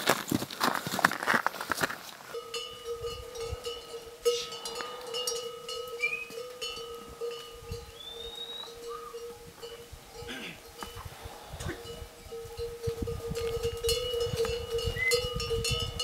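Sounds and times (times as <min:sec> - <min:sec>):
bell-like ringing tone: 0:02.3 - 0:16.0
short rising whistles: 0:06.0 - 0:06.4, 0:08.0 - 0:09.1.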